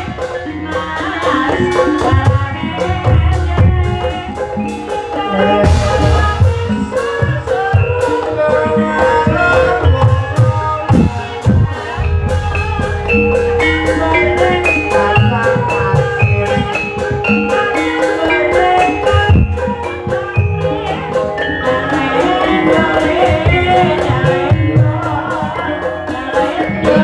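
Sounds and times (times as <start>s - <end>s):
gamelan music over loudspeakers: 0.0s - 27.0s
hand drum strokes: 9.3s - 24.7s.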